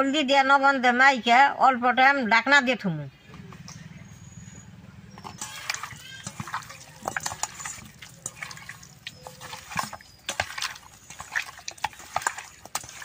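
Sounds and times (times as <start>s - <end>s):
wet squelching of kneaded chicken: 5.3s - 13.0s.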